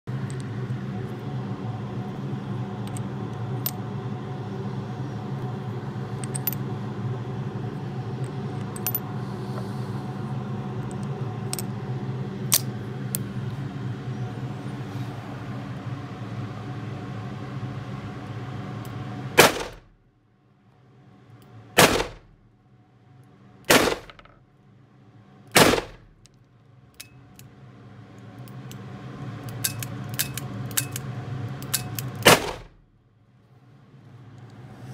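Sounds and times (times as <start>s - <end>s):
low hum: 0.1s - 34.9s
metallic clicks of cartridges loading: 6.2s - 6.6s, 29.5s - 32.4s
revolver gunshots indoors: 19.4s - 19.8s, 21.8s - 22.3s, 23.7s - 24.3s, 25.5s - 26.1s, 32.2s - 32.7s.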